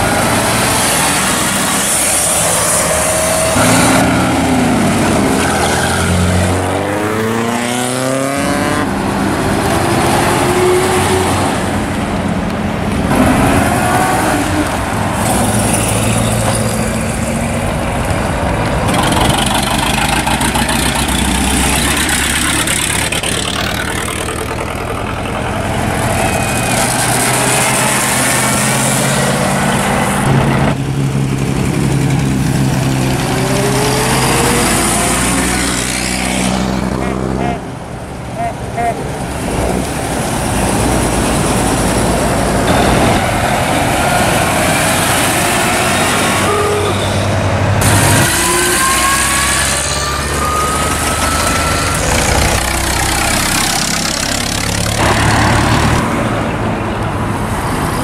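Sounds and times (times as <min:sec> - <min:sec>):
vintage cars accelerating past: 0:13.1 - 0:37.4.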